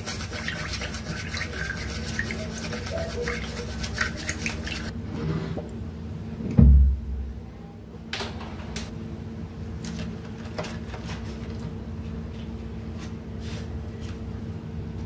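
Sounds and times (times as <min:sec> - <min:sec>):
chopsticks stirring in ceramic bowl: 0:00.0 - 0:04.9
heavy low thump: 0:06.6 - 0:07.3.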